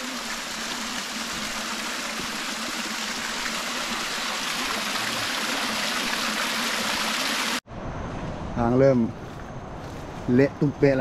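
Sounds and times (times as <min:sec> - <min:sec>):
water trickling and splashing: 0:00.0 - 0:07.6.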